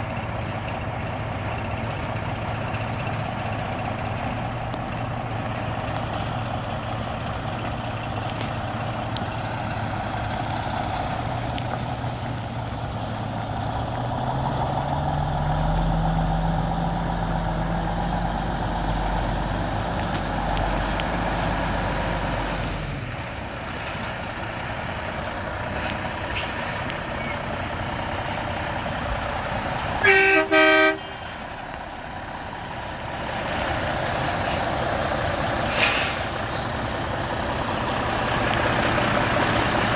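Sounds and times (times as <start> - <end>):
diesel truck engine idling: 0.0 - 39.9
loud vehicle horn: 30.0 - 31.2.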